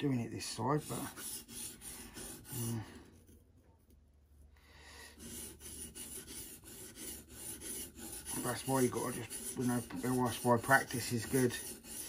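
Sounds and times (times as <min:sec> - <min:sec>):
knife scraping on whetstone: 0:00.7 - 0:03.3, 0:05.2 - 0:12.0.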